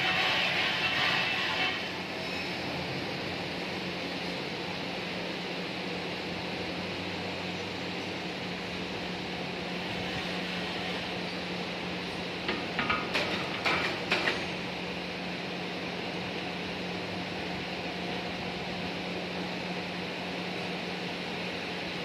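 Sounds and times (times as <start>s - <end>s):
machine shop hum: 0.0s - 22.0s
metallic clanks and knocks: 12.5s - 14.6s.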